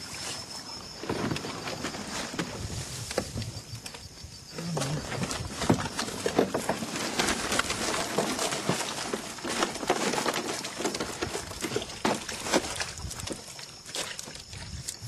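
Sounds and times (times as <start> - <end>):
mesh trap scratching and rustling: 5.3 - 13.3.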